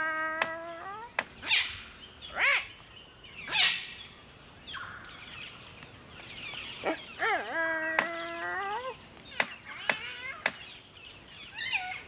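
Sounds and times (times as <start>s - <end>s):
cockatoo calls: 0.0s - 2.7s, 3.4s - 4.0s, 6.6s - 10.7s, 11.5s - 12.0s.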